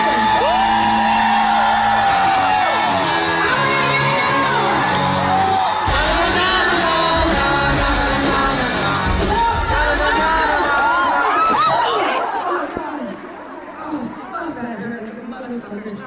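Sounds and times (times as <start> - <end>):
heavy bass: 0.0 - 11.1
steady drum beat: 0.0 - 11.2
crowd shouting and whooping: 0.0 - 12.8
person singing: 3.1 - 11.8.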